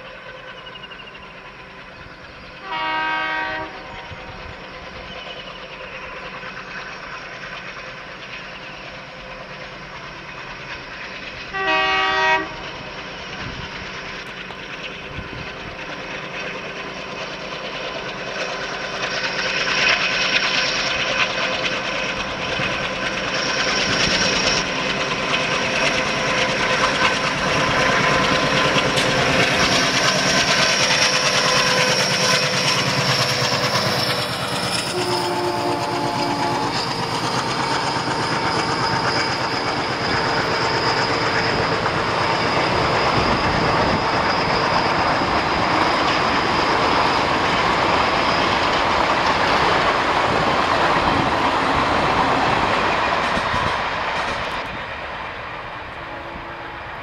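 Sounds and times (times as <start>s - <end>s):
diesel locomotive engine running: 0.0s - 57.0s
train horn blast: 2.6s - 4.2s, 11.5s - 12.7s, 34.8s - 37.0s, 55.9s - 57.0s
train wheels clattering over rail joints: 13.0s - 35.2s.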